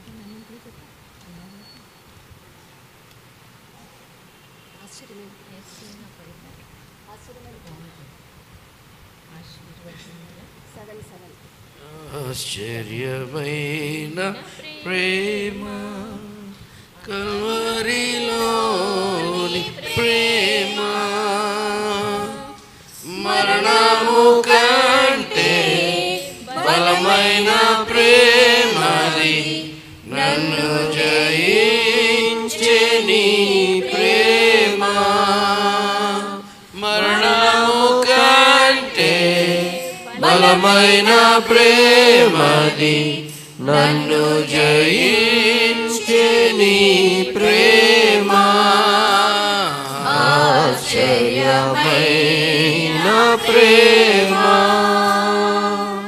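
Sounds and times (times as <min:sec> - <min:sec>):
man singing a hymn: 0:11.8 - 0:56.0.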